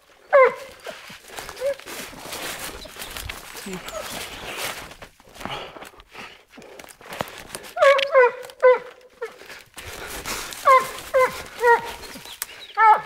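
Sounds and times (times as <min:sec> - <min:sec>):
rustling in undergrowth: 0:00.0 - 0:13.0
dog yelping barks: 0:00.3 - 0:00.8, 0:07.8 - 0:09.0, 0:10.6 - 0:12.0, 0:12.8 - 0:13.0.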